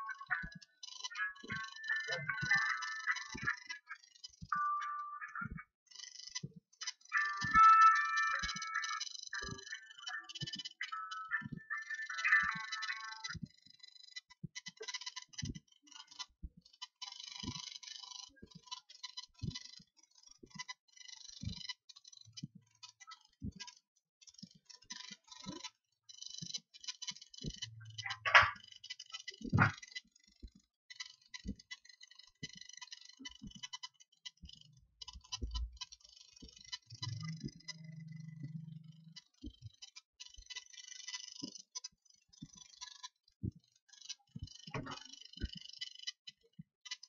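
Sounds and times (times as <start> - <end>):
mouse and keyboard clicks: 27.0 - 30.0.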